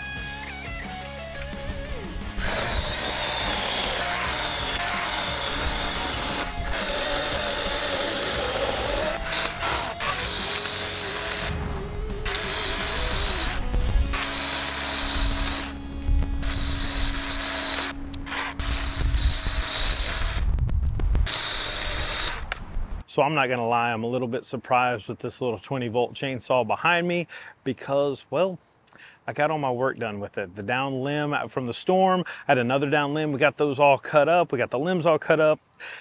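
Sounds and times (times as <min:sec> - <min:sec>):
electric chainsaw cutting wood: 0:00.9 - 0:20.6, 0:21.2 - 0:22.6.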